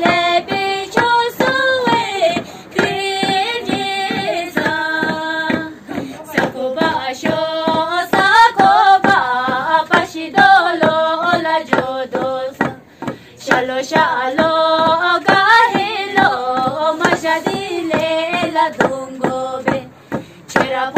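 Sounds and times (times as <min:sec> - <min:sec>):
sharp rhythmic knocks: 0:00.0 - 0:20.9
women singing: 0:00.0 - 0:20.9.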